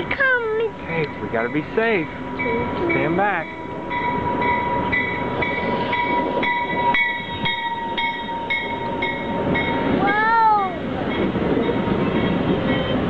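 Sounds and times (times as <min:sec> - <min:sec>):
train rumbling: 0:00.0 - 0:13.0
train brakes squealing: 0:02.4 - 0:09.8, 0:11.7 - 0:13.0.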